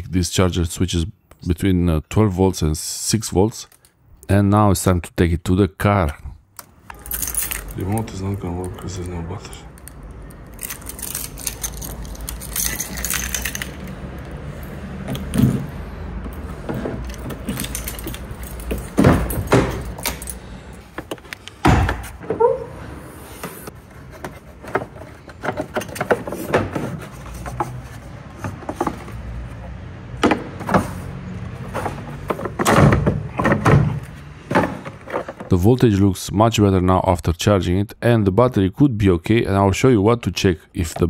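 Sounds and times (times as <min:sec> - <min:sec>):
car keys jangling in lock: 0:06.9 - 0:08.0, 0:09.7 - 0:15.4, 0:17.0 - 0:20.5.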